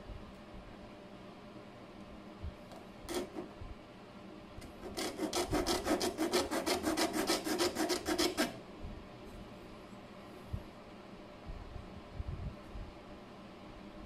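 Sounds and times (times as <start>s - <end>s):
hand file rasping on metal plate: 3.1s - 3.5s, 4.7s - 8.6s.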